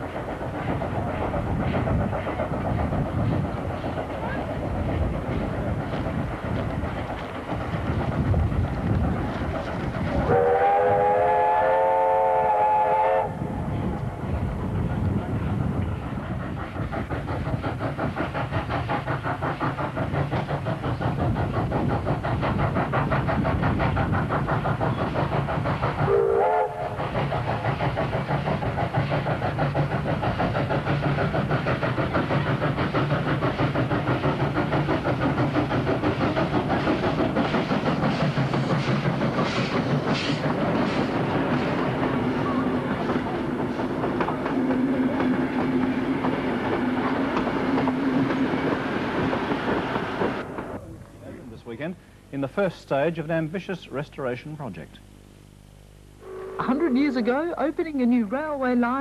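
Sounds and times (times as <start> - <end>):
steam locomotive chuffing: 0.0 - 59.0
steam locomotive whistle: 10.3 - 13.4, 26.0 - 27.0, 56.2 - 57.1.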